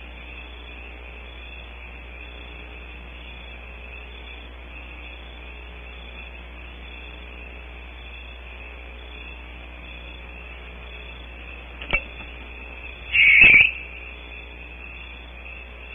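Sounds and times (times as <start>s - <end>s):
microphone hiss: 0.0s - 15.9s
sharp click: 13.2s - 13.7s.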